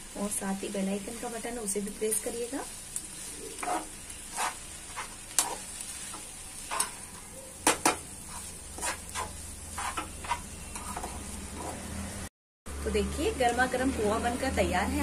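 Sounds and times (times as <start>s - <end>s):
light sizzle of frying: 0.0s - 15.0s
metal spoon scraping a pan: 3.2s - 12.0s.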